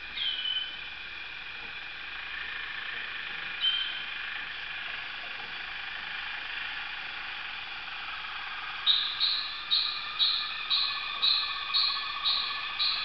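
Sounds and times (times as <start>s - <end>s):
canaries singing: 0.2s - 0.8s, 3.6s - 4.1s, 8.8s - 13.0s.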